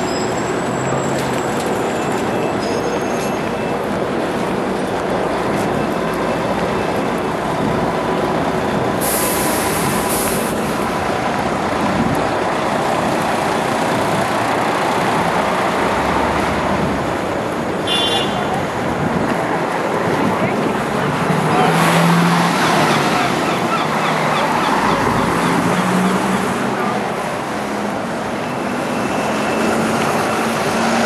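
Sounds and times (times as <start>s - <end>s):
city street traffic: 0.0s - 31.0s
bus air brakes hissing: 9.0s - 10.6s.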